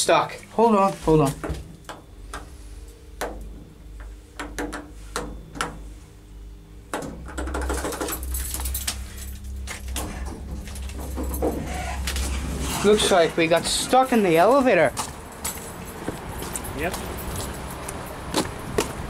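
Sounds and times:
faint steady hum: 0.0 - 19.0
low rumble with rustling: 7.2 - 19.0.

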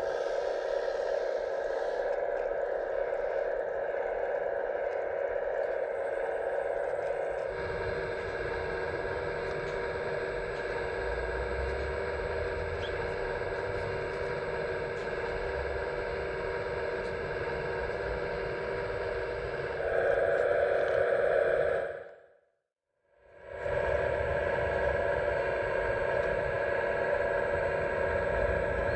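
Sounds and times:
hydraulic pump electric whine: 6.7 - 22.2.

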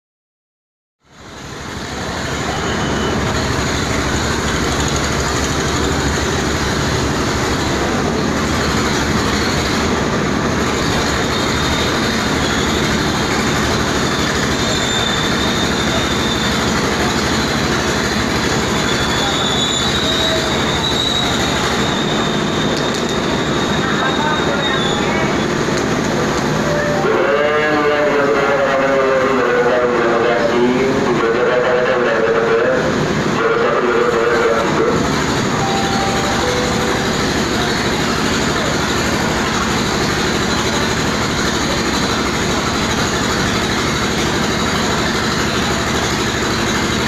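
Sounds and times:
train wheels rumbling on rail: 1.1 - 26.7, 27.5 - 47.0
high wheel squeals: 2.1 - 9.8, 10.8 - 25.7, 34.9 - 47.0.

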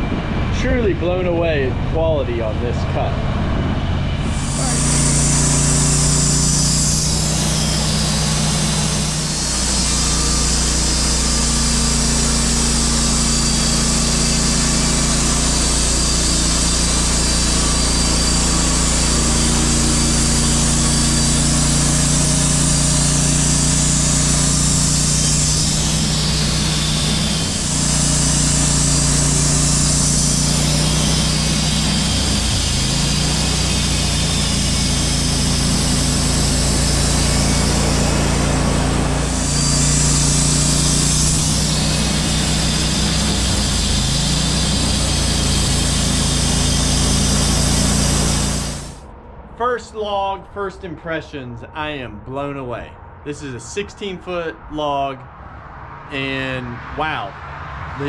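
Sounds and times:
bandsaw mill engine running: 0.0 - 49.1
saw blade sawing hiss: 4.3 - 49.0.

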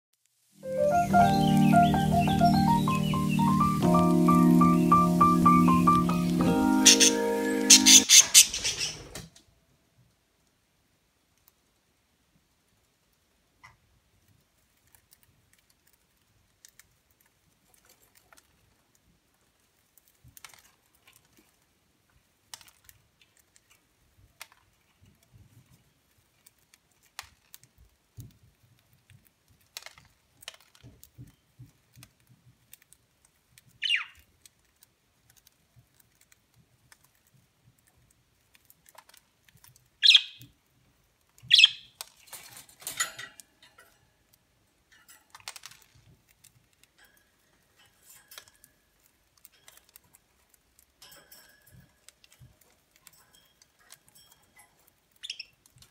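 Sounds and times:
sharp budgie calls: 1.0 - 9.2, 33.8 - 34.2, 40.0 - 40.4, 41.5 - 41.9
birds cracking seeds: 1.0 - 9.3, 22.2 - 40.6, 45.0 - 55.9
rustling: 14.1 - 55.9.

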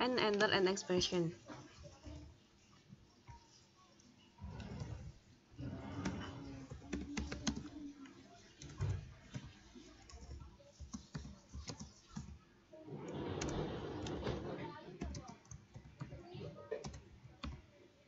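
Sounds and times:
computer keyboard typing: 5.8 - 12.4, 13.1 - 14.4, 15.0 - 17.7.

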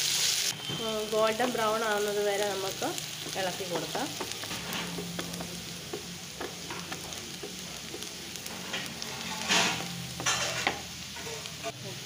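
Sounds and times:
onions sizzling in oil: 0.0 - 12.0
wooden spatula scraping pan: 3.7 - 5.6, 8.0 - 11.4.

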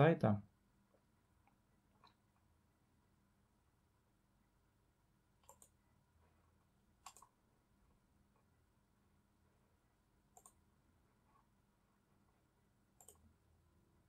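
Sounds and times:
faint room hum: 0.0 - 14.0
computer mouse clicks: 5.4 - 5.8, 7.0 - 7.4, 10.3 - 10.6, 13.0 - 13.3.

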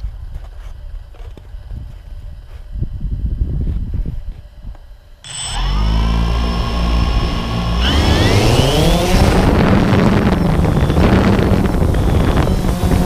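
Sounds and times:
drone motors whining: 5.2 - 13.0.

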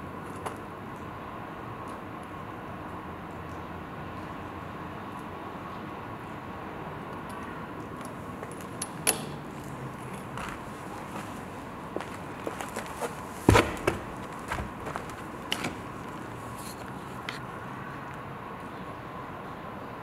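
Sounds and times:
footsteps crunching on debris: 9.6 - 17.0.

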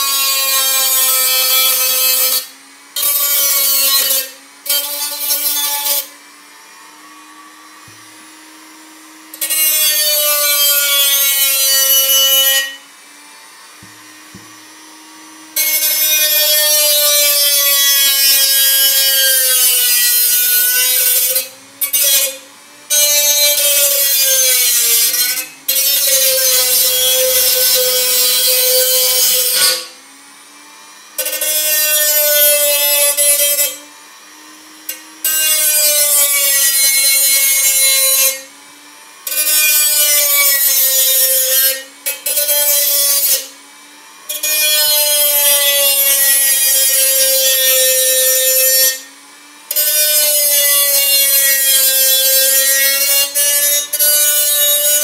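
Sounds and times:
cut-off wheel grinding metal: 0.0 - 30.0, 30.7 - 55.0
rotary tool motor whine: 0.0 - 55.0.

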